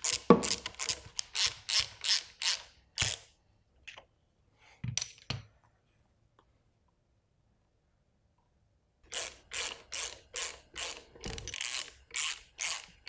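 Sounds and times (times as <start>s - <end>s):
hand ratchet clicking: 0.0s - 3.2s, 9.1s - 13.0s.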